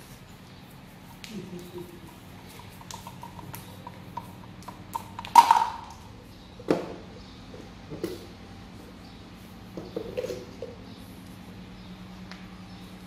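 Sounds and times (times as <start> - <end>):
plastic toys knocking on tiles: 2.8 - 6.0.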